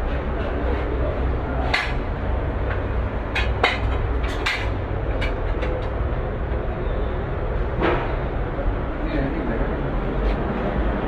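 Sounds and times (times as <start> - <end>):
workshop machinery rumble: 0.0 - 11.0
sharp clicks and knocks: 1.7 - 6.0.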